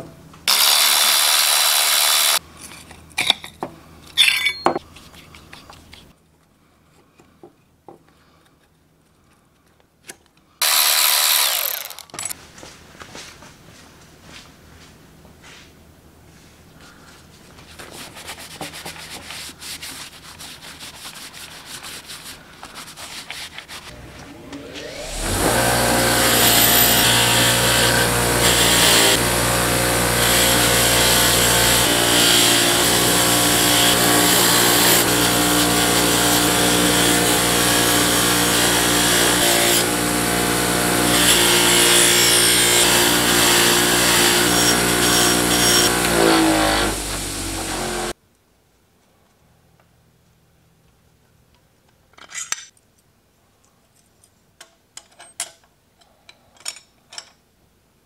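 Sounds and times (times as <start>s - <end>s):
wire wheel grinder running: 0.5s - 2.4s, 10.6s - 12.3s, 23.9s - 48.1s
handling and rubbing noises: 4.8s - 9.4s, 12.3s - 24.8s.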